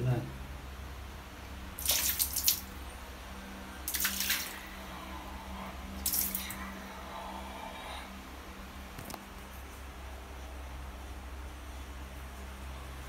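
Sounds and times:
steady low hum: 0:00.0 - 0:13.0
water splashing into plastic bucket: 0:01.8 - 0:02.7, 0:03.9 - 0:04.6.

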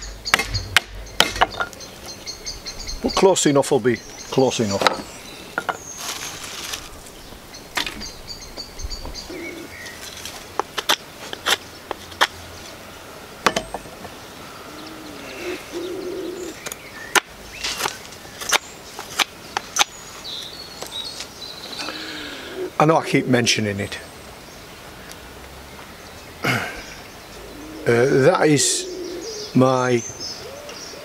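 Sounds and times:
birds chirping: 0:00.0 - 0:31.0
knife and wood knocking on block: 0:00.3 - 0:01.8.

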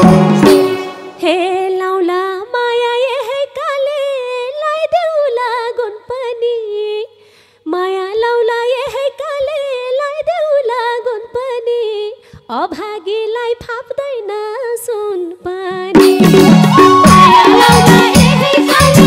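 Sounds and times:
woman singing folk song: 0:01.2 - 0:16.0.

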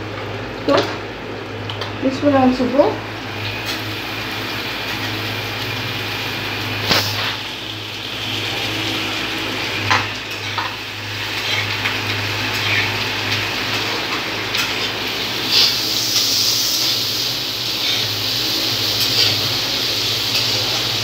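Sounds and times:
vegetables sizzling in butter: 0:02.2 - 0:21.0
spatula clinking and scraping pan: 0:09.8 - 0:17.0.

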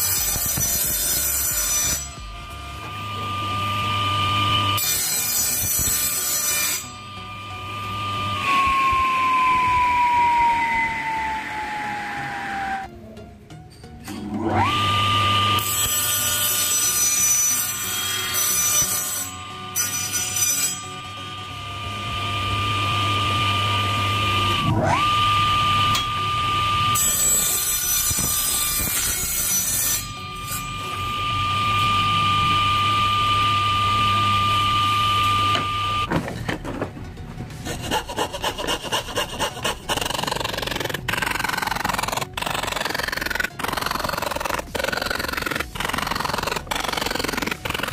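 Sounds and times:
hand saw rasping strokes: 0:00.0 - 0:02.9, 0:04.8 - 0:07.0, 0:15.5 - 0:20.9, 0:26.9 - 0:30.7, 0:37.5 - 0:47.9
saw cutting plywood rasping: 0:00.0 - 0:12.9, 0:14.4 - 0:21.0, 0:21.9 - 0:36.1, 0:37.5 - 0:47.9
table saw whining: 0:00.0 - 0:13.0, 0:14.1 - 0:47.9.

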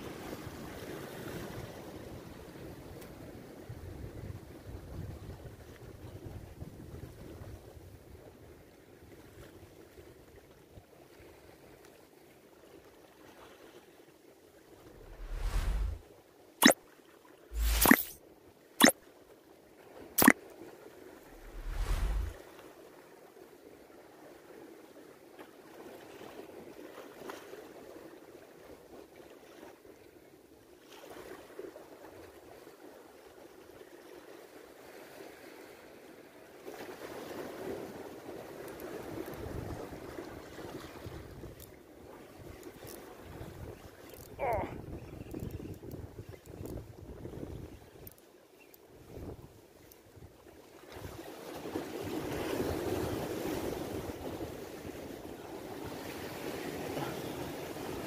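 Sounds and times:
sea water lapping against rocks: 0:15.0 - 0:16.0, 0:21.4 - 0:22.4.

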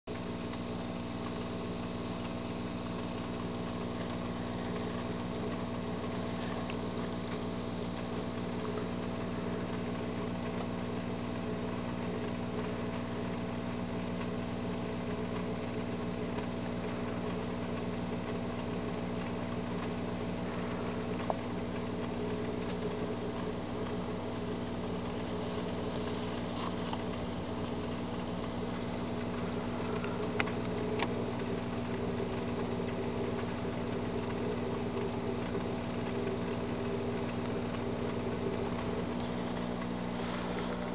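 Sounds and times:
low mechanical hum: 0:00.0 - 0:40.9.

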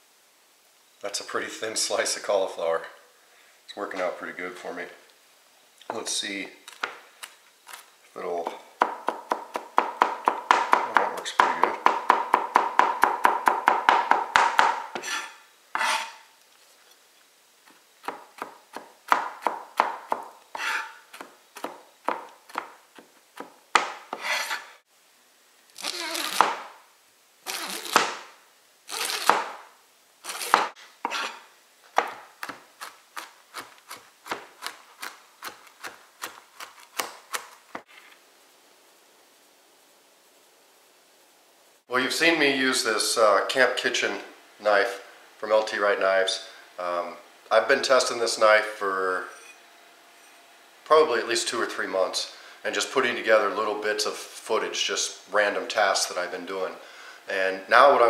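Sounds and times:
knife chopping on cutting board: 0:08.8 - 0:16.2, 0:30.3 - 0:31.4
blade rasping across board: 0:15.0 - 0:16.2, 0:20.6 - 0:21.0, 0:24.1 - 0:24.7, 0:30.2 - 0:31.4.

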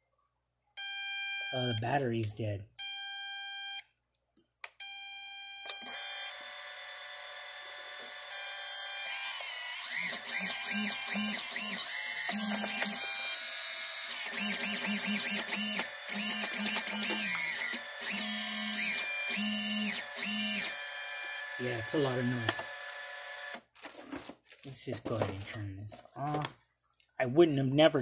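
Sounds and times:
drone motors whining: 0:05.6 - 0:23.6.

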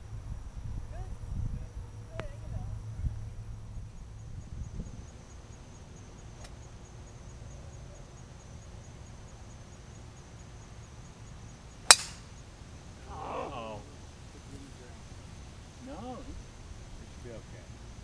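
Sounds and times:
golf club striking ball: 0:11.8 - 0:12.3.

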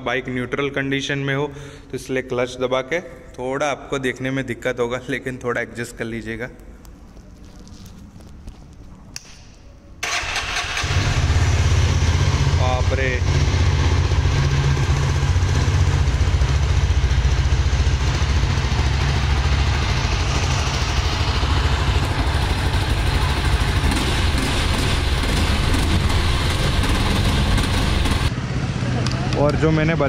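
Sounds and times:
motorcycle engine idling: 0:10.8 - 0:28.3.

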